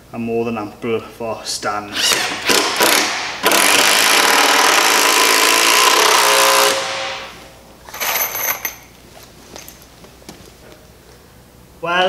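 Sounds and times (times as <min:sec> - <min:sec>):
cordless drill driving screw: 0:02.0 - 0:06.9.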